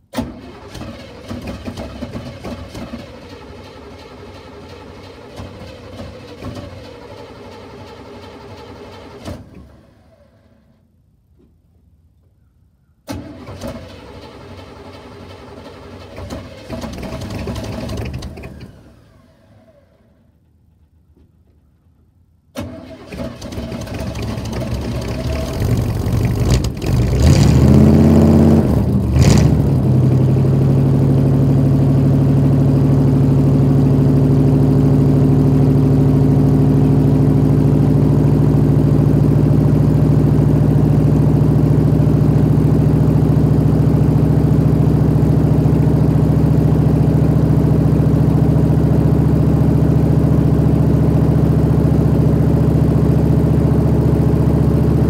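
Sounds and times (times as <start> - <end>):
truck engine cranking and idling: 0.0 - 11.0, 13.1 - 55.0.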